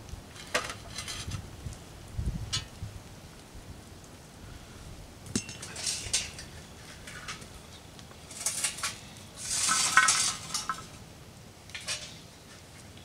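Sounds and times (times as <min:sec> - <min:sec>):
coals clattering onto metal lid: 0:00.3 - 0:01.4, 0:05.3 - 0:11.0, 0:11.6 - 0:12.7.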